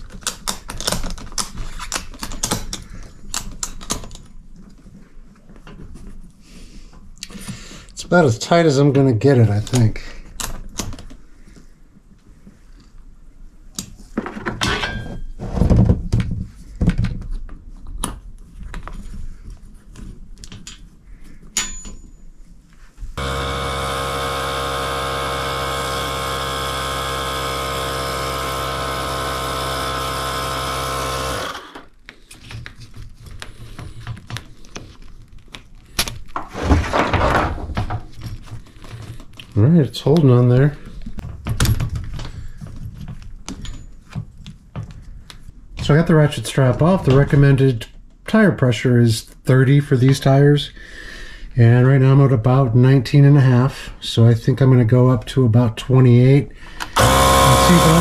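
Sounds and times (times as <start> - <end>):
knocks and clicks of handling: 0.0 - 4.8
electric tire inflator humming: 23.2 - 31.9, 56.9 - 58.0.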